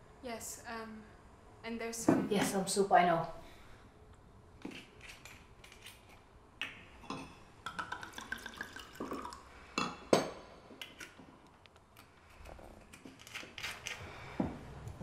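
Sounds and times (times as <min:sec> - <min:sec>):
wine pouring into a glass: 0:07.7 - 0:09.6.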